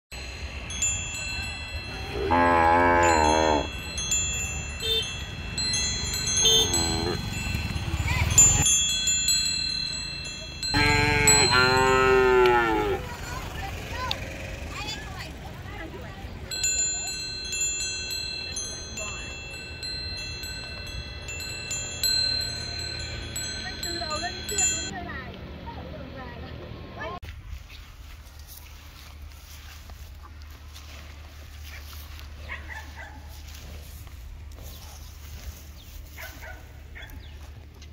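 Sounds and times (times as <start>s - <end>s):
thin high ringing tones: 0.1s - 13.4s, 16.5s - 25.0s
cow mooing: 2.1s - 3.7s, 6.4s - 7.3s, 10.7s - 13.2s.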